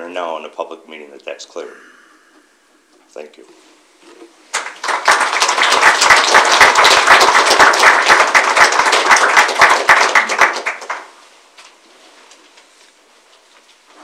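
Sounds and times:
audience applauding: 0:04.5 - 0:11.2.

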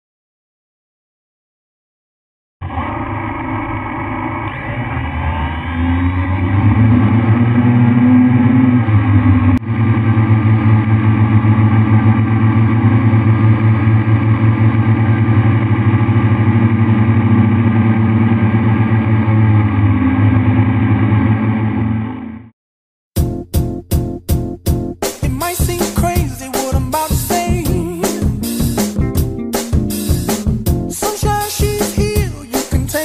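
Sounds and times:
drone motors whining: 0:02.6 - 0:22.5.

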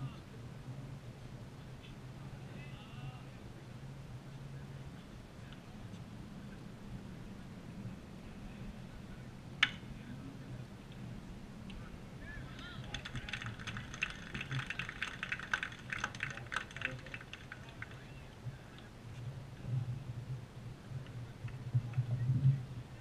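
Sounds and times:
steady low hum: 0:00.0 - 0:23.0
scattered clapping: 0:12.5 - 0:18.1.

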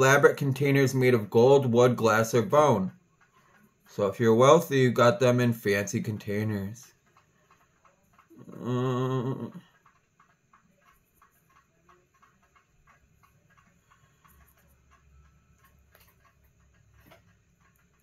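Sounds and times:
faint small clicks and ticks: 0:00.0 - 0:18.0
person humming: 0:08.3 - 0:09.7.

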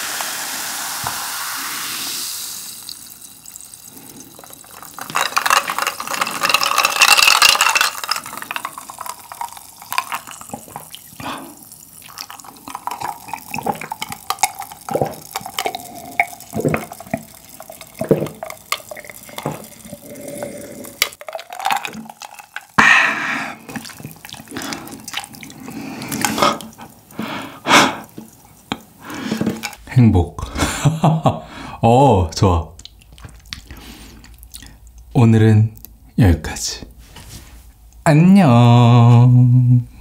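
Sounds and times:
man gulping and swallowing water: 0:02.5 - 0:35.1
breathing: 0:11.2 - 0:11.6, 0:20.0 - 0:21.0, 0:25.6 - 0:28.1, 0:29.0 - 0:29.6, 0:31.4 - 0:31.8, 0:33.6 - 0:34.8
wet mouth clicks: 0:32.8 - 0:35.1.

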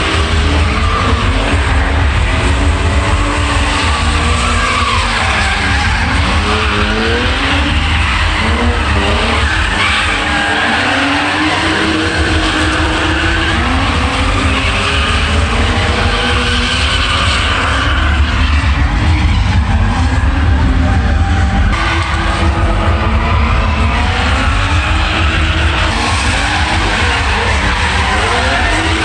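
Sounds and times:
car engines revving: 0:00.0 - 0:29.0.

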